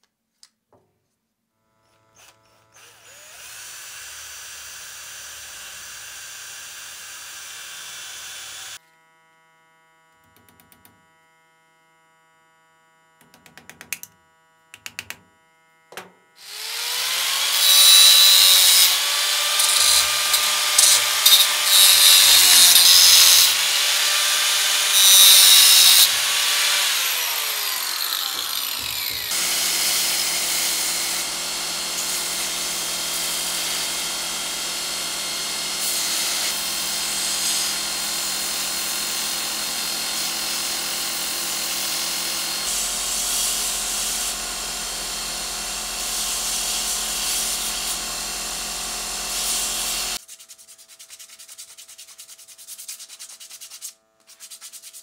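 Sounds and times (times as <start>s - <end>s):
angle grinder cutting steel: 2.2s - 8.8s, 16.4s - 50.2s
belt grinder humming: 15.9s - 50.2s.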